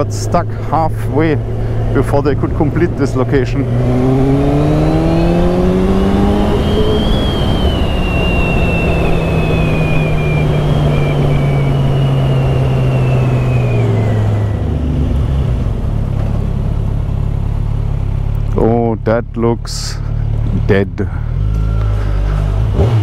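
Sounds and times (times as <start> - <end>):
wind rushing over microphone: 1.3 - 16.1.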